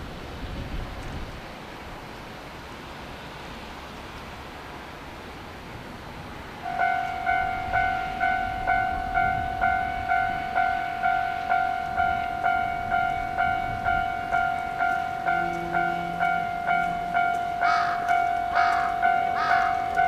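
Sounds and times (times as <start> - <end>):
level-crossing warning bell clanging: 6.6 - 20.0.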